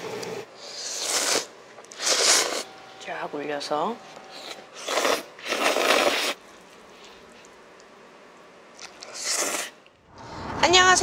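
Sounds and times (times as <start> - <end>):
person slurping noodles: 0.6 - 2.7, 4.8 - 6.4, 9.0 - 9.8.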